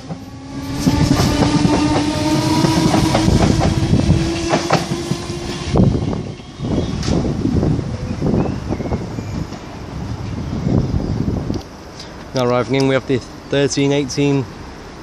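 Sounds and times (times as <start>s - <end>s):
electric train motor whine: 0.0s - 7.9s.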